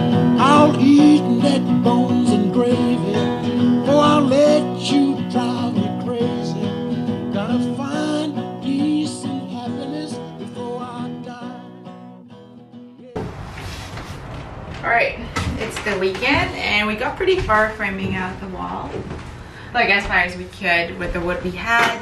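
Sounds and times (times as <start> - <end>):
country song with acoustic guitar: 0.0 - 13.2.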